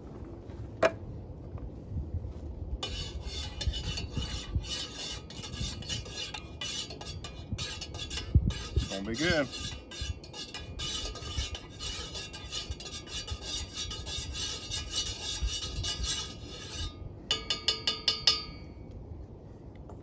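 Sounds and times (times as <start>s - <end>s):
spoon stirring in metal mug: 2.8s - 18.7s
spoon tapping on mug: 17.3s - 18.5s.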